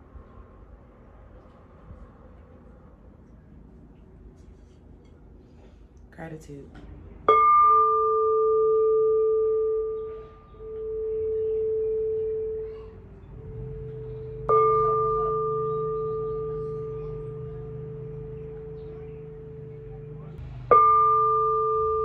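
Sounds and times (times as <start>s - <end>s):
singing bowl ringing: 7.3s - 22.0s.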